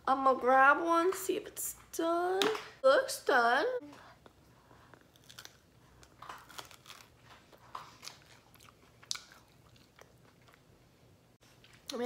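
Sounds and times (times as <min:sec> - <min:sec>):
person chewing crunchy snack: 0:04.9 - 0:10.6.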